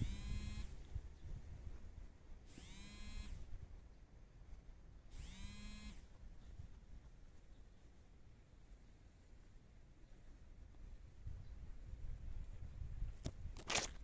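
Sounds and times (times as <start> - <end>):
small motor whining: 0.0 - 0.8, 2.5 - 3.5, 5.1 - 6.0.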